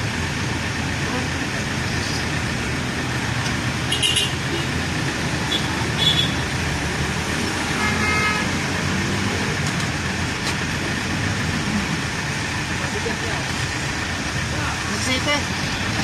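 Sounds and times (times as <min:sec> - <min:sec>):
truck engine idling: 0:00.0 - 0:06.6, 0:09.6 - 0:16.0
passing street traffic: 0:00.0 - 0:16.0
car horn toot: 0:03.9 - 0:04.7, 0:05.5 - 0:06.4, 0:07.7 - 0:08.5.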